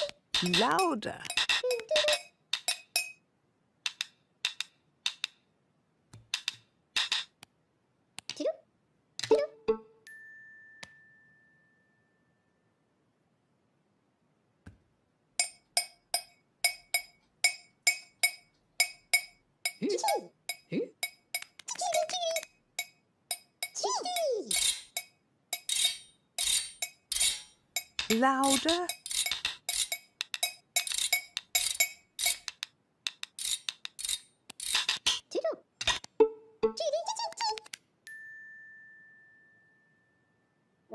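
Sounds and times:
utensils clinking on crockery: 0.4s - 3.2s, 22.8s - 32.6s.

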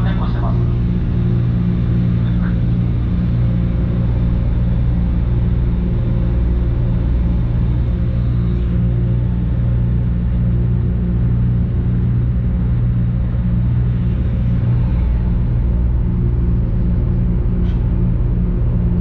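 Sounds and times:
ferry engine droning: 0.0s - 19.0s.

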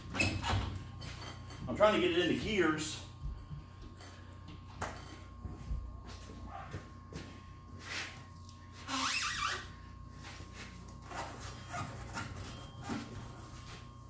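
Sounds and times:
steady low shop hum: 0.0s - 14.0s.

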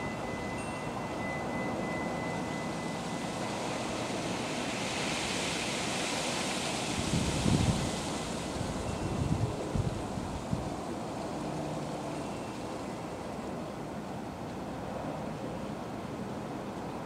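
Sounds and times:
wind chime ringing tone: 0.0s - 5.1s, 8.8s - 9.4s, 12.1s - 13.2s
wind rushing: 3.2s - 10.8s.

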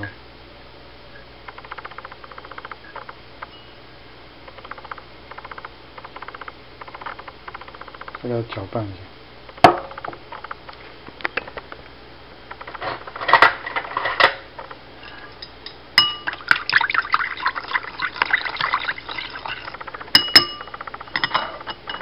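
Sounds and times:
sharp ringing knocks: 20.2s - 21.4s.

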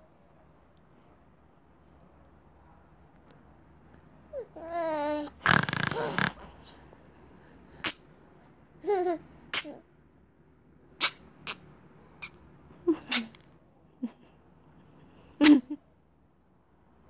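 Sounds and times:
baby cooing: 4.3s - 6.5s.

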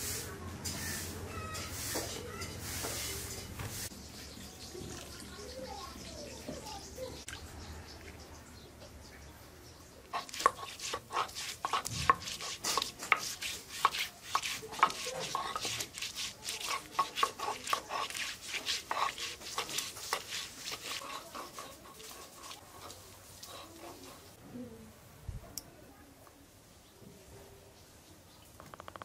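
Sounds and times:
metal utensil scraping cooking pot: 10.1s - 24.4s.

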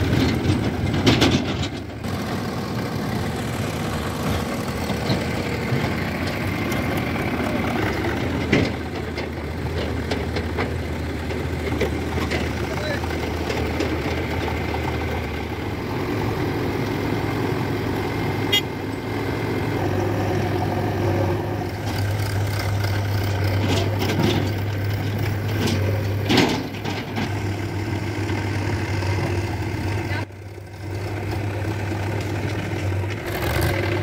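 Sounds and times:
tractor diesel engine running: 0.0s - 34.0s.

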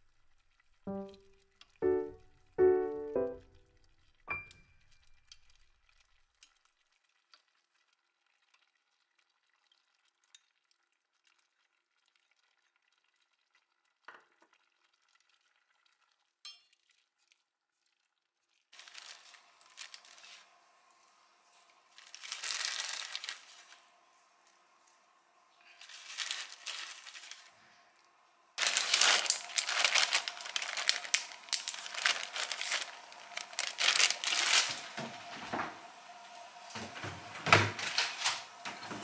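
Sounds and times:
soup simmering and bubbling: 3.8s - 33.7s.

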